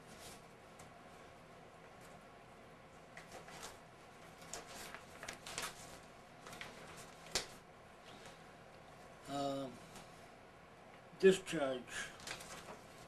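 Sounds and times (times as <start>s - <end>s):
paper pages rustling: 0.1s - 0.5s, 3.2s - 8.4s, 12.2s - 13.0s.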